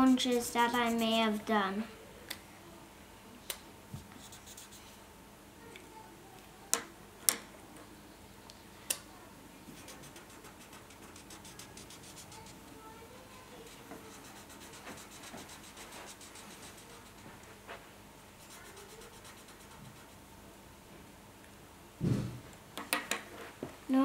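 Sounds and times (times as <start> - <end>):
marker scribbling on paper: 0.0 - 1.4, 4.2 - 4.8, 9.7 - 12.6, 13.6 - 17.4, 18.4 - 20.2.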